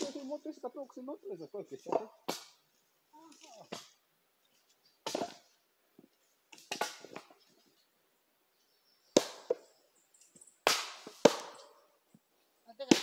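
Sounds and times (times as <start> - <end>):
axe chopping firewood: 1.9 - 2.6, 5.0 - 5.5, 6.5 - 7.3, 9.1 - 9.7, 10.6 - 11.8, 12.8 - 13.0.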